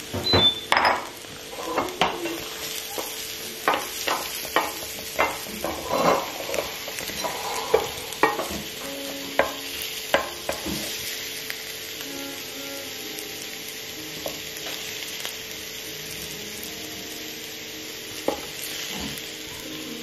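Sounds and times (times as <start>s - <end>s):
butter sizzling: 0.0s - 20.0s
wooden spatula scraping a skillet: 1.4s - 11.2s.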